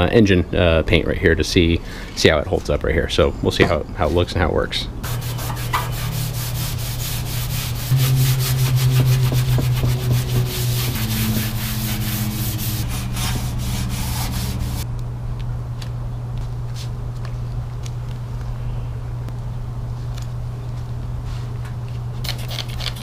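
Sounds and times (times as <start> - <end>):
steady low hum: 0.0 - 23.0
scuff pad scrubbing metal panel: 5.0 - 14.8.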